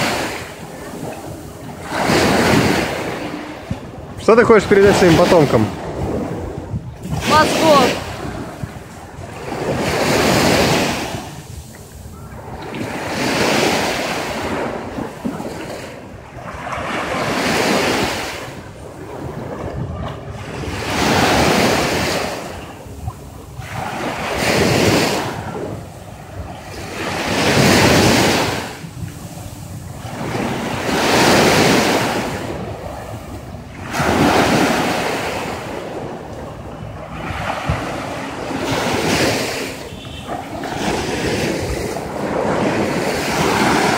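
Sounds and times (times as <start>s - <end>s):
small waves washing on shore: 0.0s - 43.9s.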